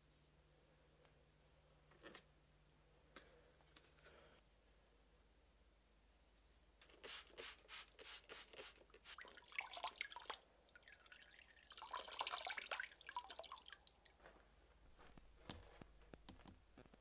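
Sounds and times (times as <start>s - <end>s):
spray bottle squirting: 6.9s - 9.3s
water dripping: 9.0s - 14.2s.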